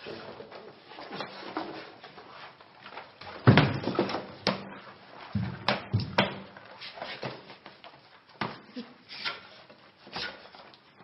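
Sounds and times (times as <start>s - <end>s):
heavy thumps on the floor: 5.2s - 6.5s.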